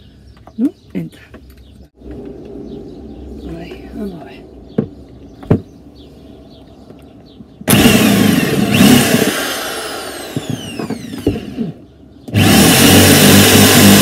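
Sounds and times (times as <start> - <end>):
electric drill running: 7.7 - 14.0.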